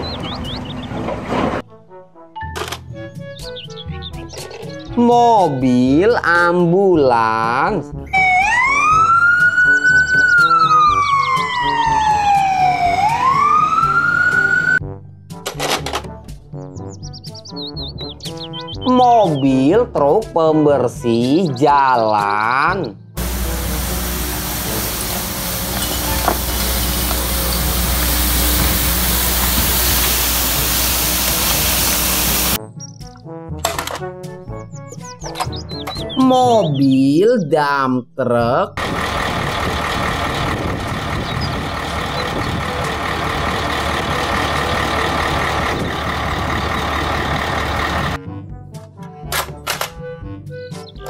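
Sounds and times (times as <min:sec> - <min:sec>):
background music with steady beat: 0:05.8 - 0:20.4, 0:21.0 - 0:36.3, 0:48.1 - 0:51.0
ambulance siren wailing: 0:08.1 - 0:14.8, 0:23.2 - 0:32.6, 0:38.8 - 0:48.2
brushes sweeping paving stones: 0:23.2 - 0:32.6
street sweeper running: 0:23.2 - 0:32.6, 0:38.8 - 0:48.2.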